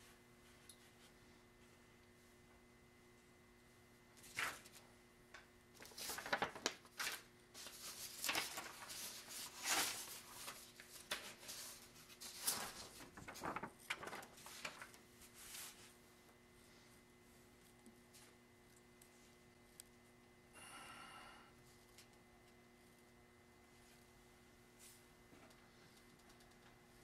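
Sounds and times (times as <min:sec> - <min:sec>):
faint steady hum: 0:00.0 - 0:27.0
paper rustling on wooden table: 0:05.8 - 0:15.9.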